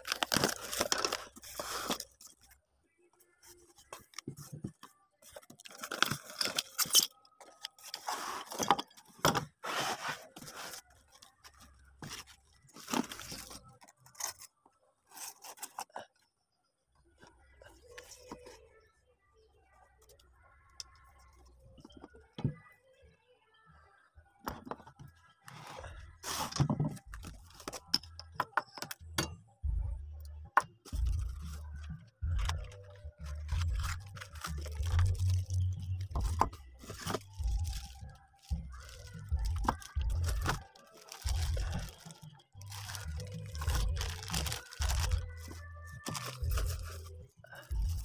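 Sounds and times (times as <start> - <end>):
plastic bags crinkling: 0.0 - 2.6, 4.0 - 9.6, 10.2 - 14.5, 30.9 - 48.0.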